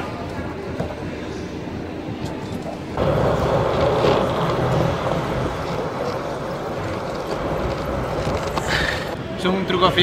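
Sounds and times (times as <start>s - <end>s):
longboard grinding over concrete: 3.0s - 9.2s.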